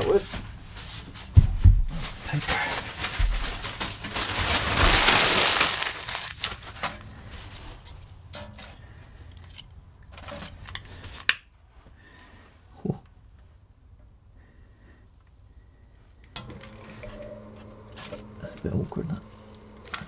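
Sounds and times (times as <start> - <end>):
paper being crumpled: 1.9 - 7.6.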